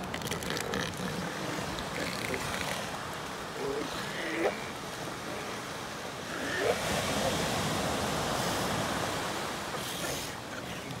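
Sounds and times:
ocean surf breaking on beach: 0:04.6 - 0:11.0.

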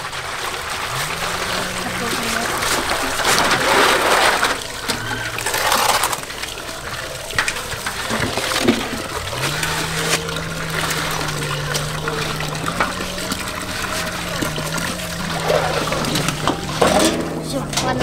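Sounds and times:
hands sloshing meat in water: 0:00.0 - 0:18.0
water pouring into steel basins: 0:00.0 - 0:18.0.

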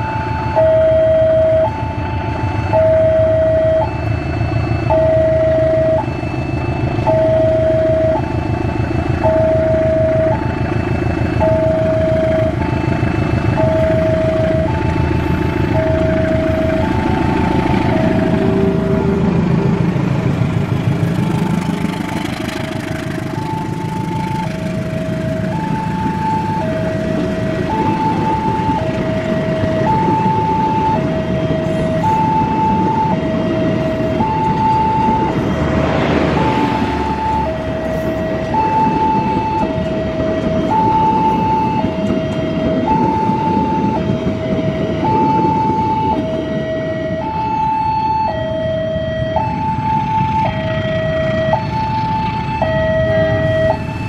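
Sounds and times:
train carriages rumbling on rails: 0:00.0 - 0:54.0
two-tone crossing alarm: 0:00.0 - 0:54.0
rush of noise: 0:33.7 - 0:39.0.

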